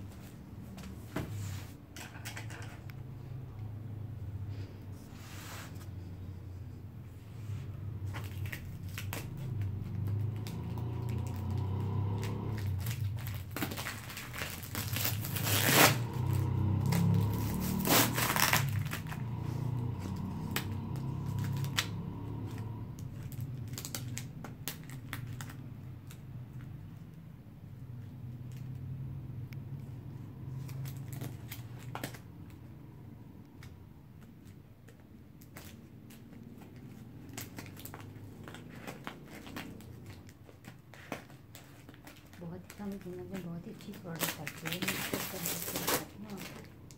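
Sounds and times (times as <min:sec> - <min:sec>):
tape crinkling: 0:07.9 - 0:27.2, 0:29.6 - 0:32.7, 0:33.5 - 0:46.9.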